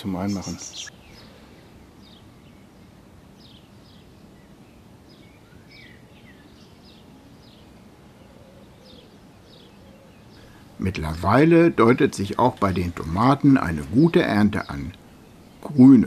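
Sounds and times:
small bird chirping: 0.0 - 2.8.

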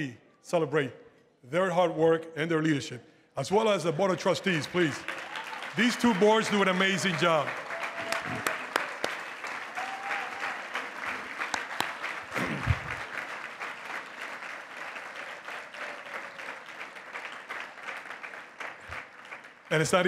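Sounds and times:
audience applauding: 4.3 - 20.0.

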